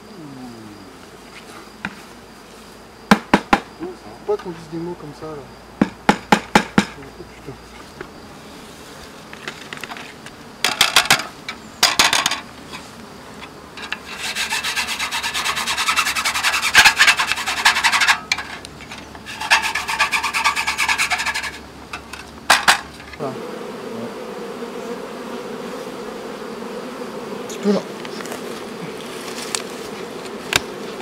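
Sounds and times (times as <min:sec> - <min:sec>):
brush scrubbing wire mesh: 0:13.8 - 0:18.6, 0:19.2 - 0:21.6.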